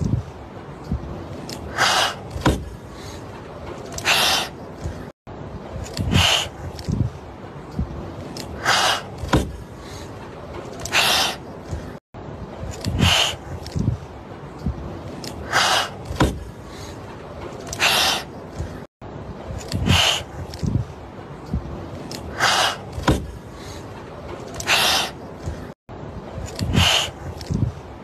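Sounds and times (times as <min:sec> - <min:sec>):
kittens hissing: 0:01.7 - 0:02.5, 0:04.0 - 0:04.6, 0:06.0 - 0:06.6, 0:08.6 - 0:09.3, 0:10.8 - 0:11.4, 0:12.9 - 0:13.4, 0:15.4 - 0:16.0, 0:19.8 - 0:20.3, 0:24.6 - 0:25.2.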